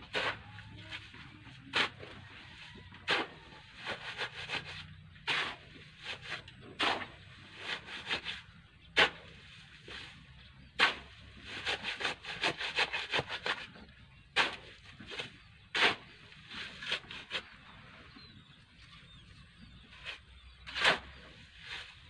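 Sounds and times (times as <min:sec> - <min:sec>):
shovel scraping gritty soil: 0:00.0 - 0:18.5, 0:19.1 - 0:22.0
shovel chopping into soil: 0:05.3 - 0:08.4, 0:09.0 - 0:09.3, 0:10.8 - 0:13.7, 0:14.4 - 0:16.1, 0:20.1 - 0:21.2.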